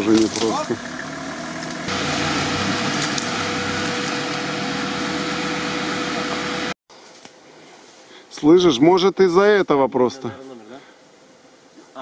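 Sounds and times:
engine idling: 0.0 - 6.7.

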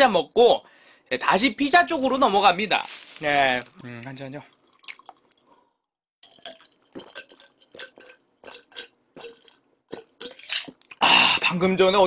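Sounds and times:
person gulping a drink: 3.6 - 5.5, 6.2 - 11.4.

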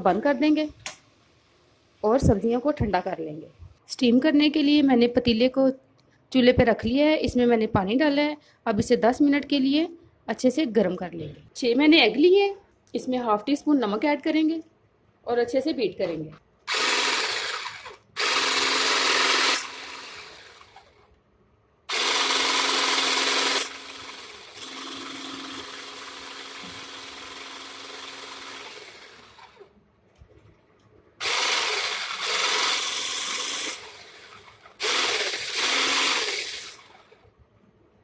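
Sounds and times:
electric blender whisking eggs: 16.7 - 20.9, 21.9 - 29.7, 31.2 - 37.2.

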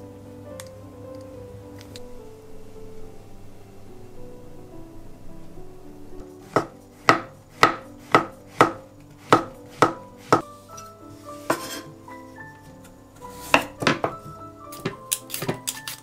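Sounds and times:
soft background music: 0.0 - 16.0
knife chopping on wooden board: 6.5 - 10.4.

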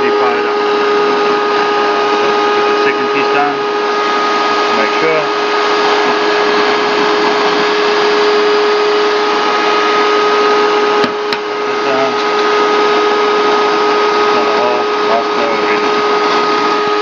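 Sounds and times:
vacuum cleaner whining: 0.0 - 17.0.

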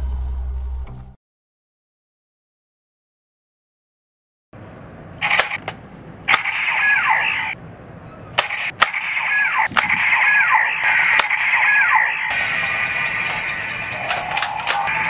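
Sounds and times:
electronic standby loop: 5.2 - 5.7, 6.3 - 7.6, 8.4 - 15.0
sharp plastic clicks: 5.2 - 6.6, 8.4 - 10.1, 10.8 - 11.4, 13.2 - 15.0.

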